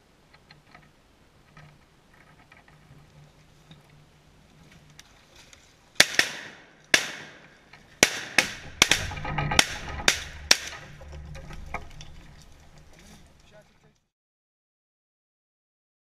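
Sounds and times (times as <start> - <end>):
shotgun shots: 6.0 - 10.8.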